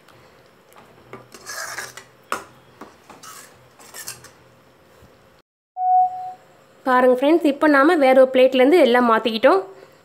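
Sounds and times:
ladle scraping steel pot: 0:01.3 - 0:02.1, 0:03.1 - 0:04.4.

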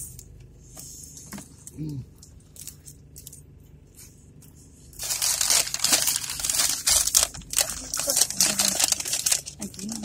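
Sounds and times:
paper wrapping crinkling: 0:05.0 - 0:10.0.

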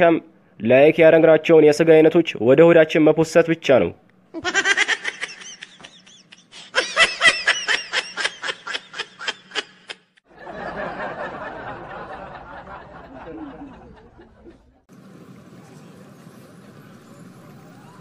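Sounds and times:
man laughing hard: 0:04.4 - 0:14.6.

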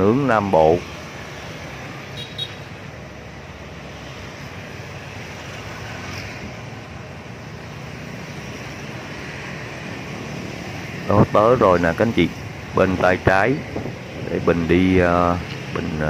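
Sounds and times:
road traffic rumble: 0:00.0 - 0:16.0
wind on microphone: 0:12.4 - 0:14.9.

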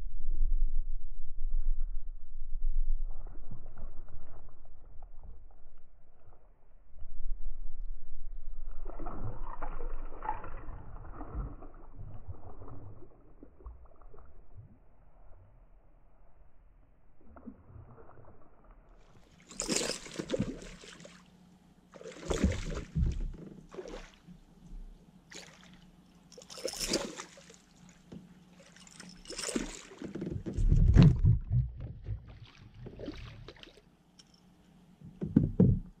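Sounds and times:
fish splashing and thrashing in water: 0:08.6 - 0:14.6, 0:19.2 - 0:21.3, 0:21.9 - 0:24.3, 0:25.3 - 0:33.9.

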